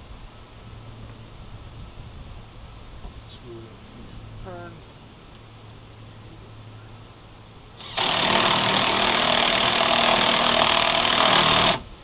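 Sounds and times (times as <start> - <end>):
cordless power driver running: 7.8 - 12.0.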